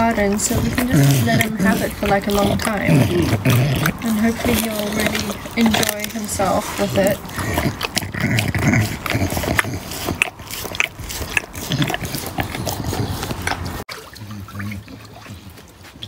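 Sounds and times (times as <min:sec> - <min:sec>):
dog snorting breaths: 0:00.0 - 0:13.8
dog chewing and crunching bone: 0:00.0 - 0:13.9
water sloshing: 0:00.0 - 0:16.0.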